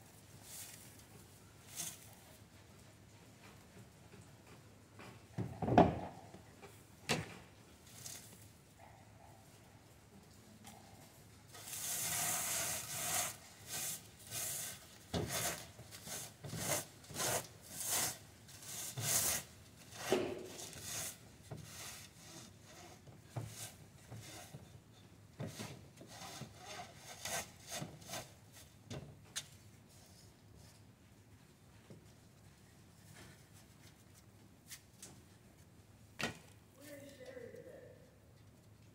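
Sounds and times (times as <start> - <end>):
seed heads rasping on wire mesh: 11.6 - 23.0.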